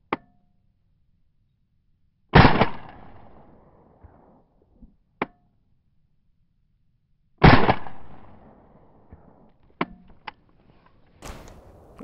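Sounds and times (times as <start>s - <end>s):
suppressed rifle shot: 2.4s - 4.4s, 7.4s - 9.5s, 11.2s - 12.0s.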